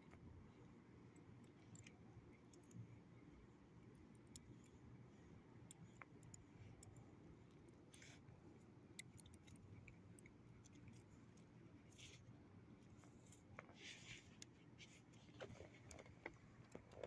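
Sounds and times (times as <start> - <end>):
faint low hum: 0.0 - 17.0
soft rustles: 10.6 - 17.0.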